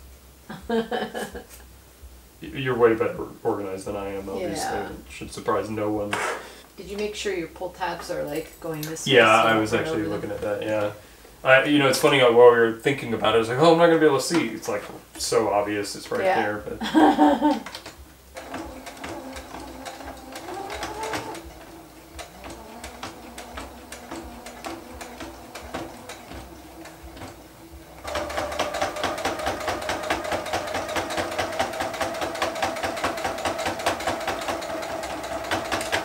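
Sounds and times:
sewing machine stitching: 0:17.5 - 0:36.0
motor whine: 0:18.3 - 0:30.7.

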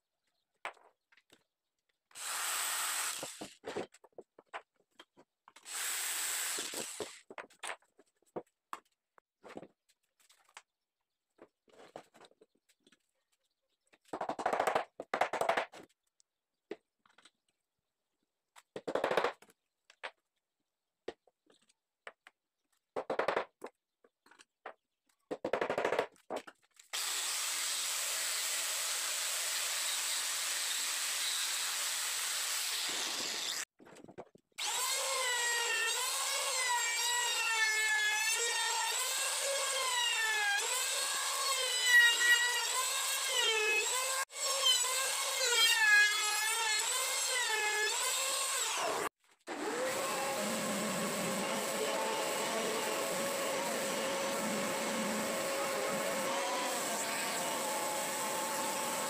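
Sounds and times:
router cutting wood: 0:26.9 - 0:33.7, 0:34.6 - 0:59.0
angle grinder sanding wood: 0:38.4 - 0:59.0.

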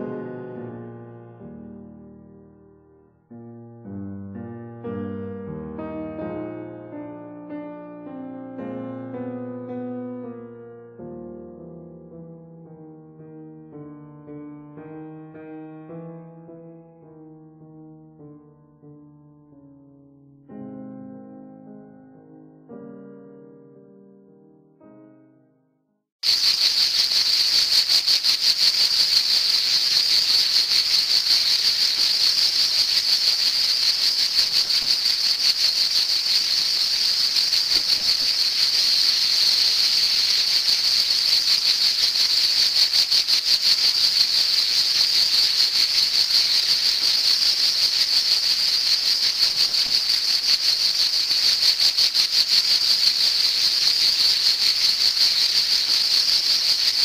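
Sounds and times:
cicadas buzzing: 0:26.2 - 0:57.0.

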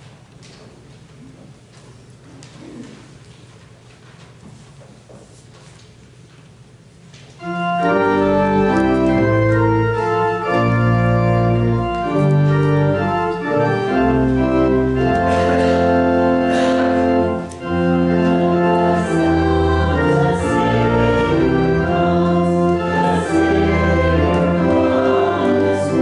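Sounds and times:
church organ playing chords: 0:07.4 - 0:26.0.

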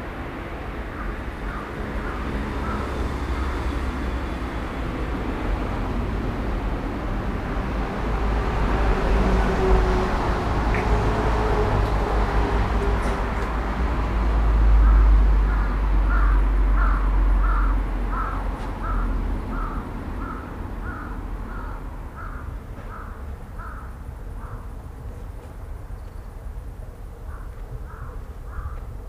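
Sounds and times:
crow cawing: 0:00.9 - 0:03.0, 0:14.8 - 0:24.7, 0:27.3 - 0:28.9.

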